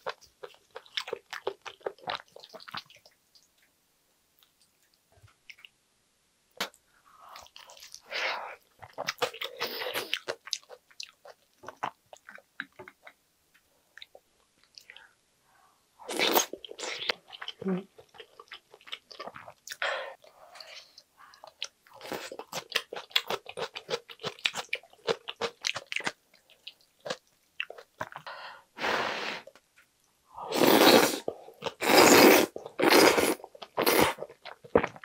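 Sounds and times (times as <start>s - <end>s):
person chewing food: 0.0s - 3.7s, 6.6s - 15.1s, 16.1s - 28.3s.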